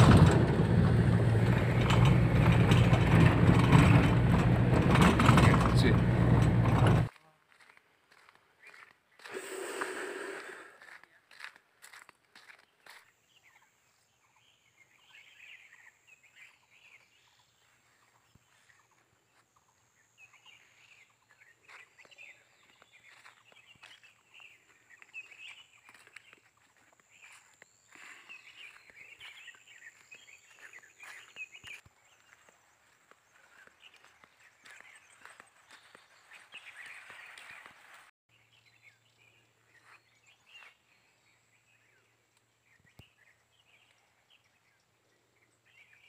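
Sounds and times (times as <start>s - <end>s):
small birds twittering: 12.6s - 46.0s.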